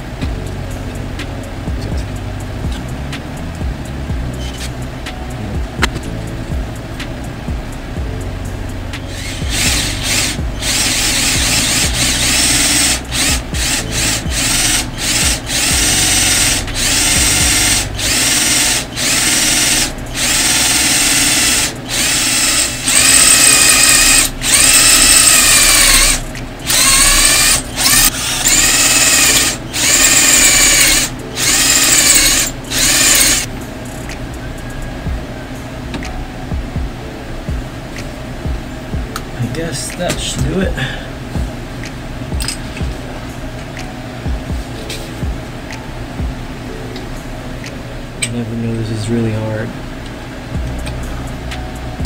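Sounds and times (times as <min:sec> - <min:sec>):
cordless drill motor whine: 0:09.0 - 0:33.5.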